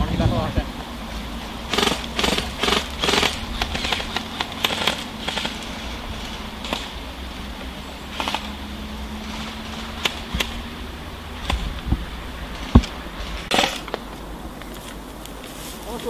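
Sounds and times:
steady low rumble: 0:00.0 - 0:15.9
airsoft gun shots: 0:01.7 - 0:05.6
short rasping burst: 0:01.7 - 0:07.0.

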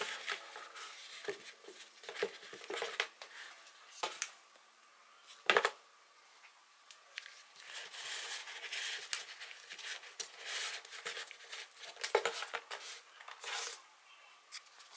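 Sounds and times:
headphones rustling into case: 0:00.0 - 0:04.4, 0:07.2 - 0:13.8.

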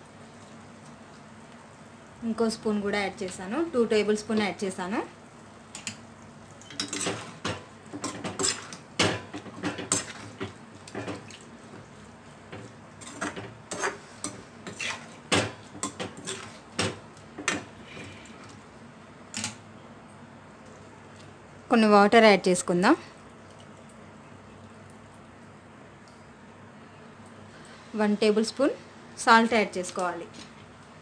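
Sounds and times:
metal spatula scraping a pan: 0:13.0 - 0:15.2.

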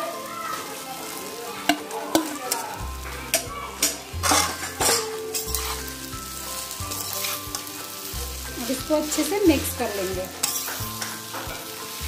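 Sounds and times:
potatoes sizzling in hot oil: 0:00.0 - 0:12.0
metal spatula scraping a pan: 0:03.3 - 0:12.0.

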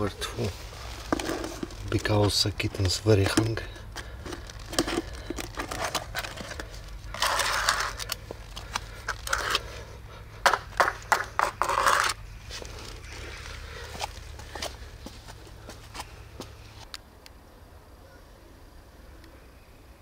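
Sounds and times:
plastic rustle: 0:00.4 - 0:09.8.

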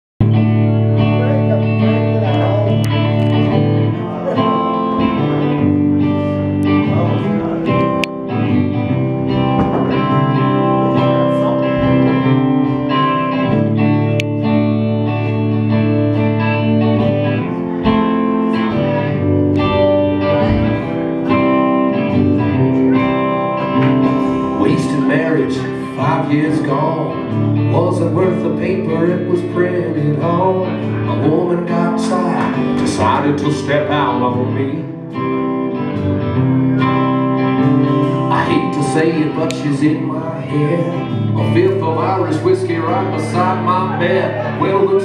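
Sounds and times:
bass guitar: 0:00.2 - 0:45.0
drums: 0:00.2 - 0:45.0
electric guitar chords: 0:00.2 - 0:45.0.

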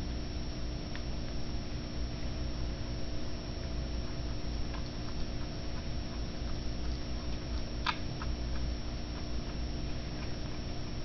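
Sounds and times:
steady low hum: 0:00.0 - 0:11.0
kitten chewing and licking: 0:02.2 - 0:11.0.

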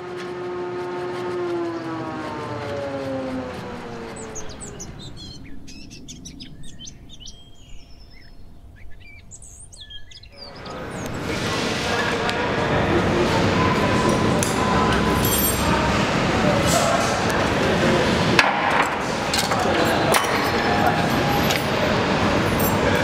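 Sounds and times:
birds chirping: 0:00.4 - 0:16.6.

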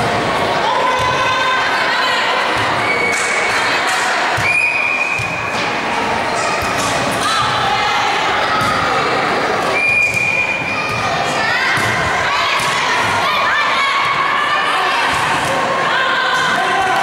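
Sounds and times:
crowd shouting and cheering: 0:00.0 - 0:17.0
whistle blown: 0:04.4 - 0:05.3, 0:09.8 - 0:10.7.

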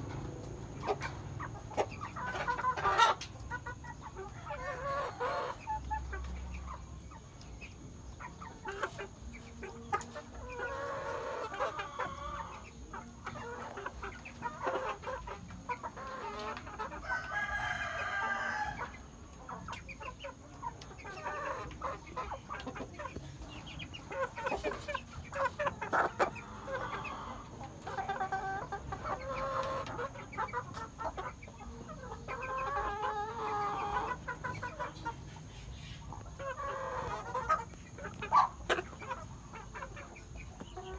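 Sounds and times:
chickens clucking: 0:00.0 - 0:40.9
rooster crowing: 0:17.0 - 0:18.9.

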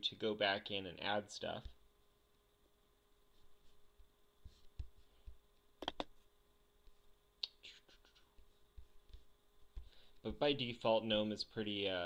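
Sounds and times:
computer mouse clicks: 0:05.8 - 0:06.1.

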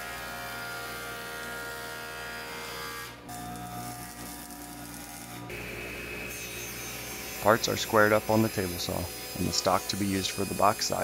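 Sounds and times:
hiss of wood cutting: 0:06.9 - 0:11.0.

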